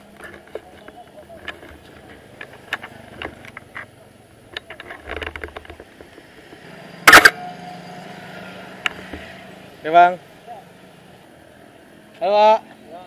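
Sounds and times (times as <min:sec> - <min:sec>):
camera shutter double click: 0:07.1 - 0:07.4.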